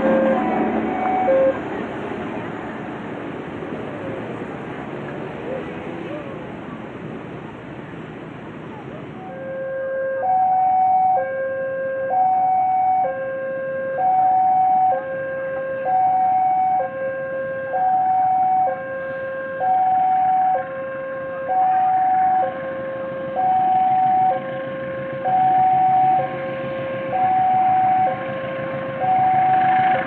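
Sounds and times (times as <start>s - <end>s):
level crossing two-tone alarm: 0.0s - 1.6s, 9.4s - 30.0s.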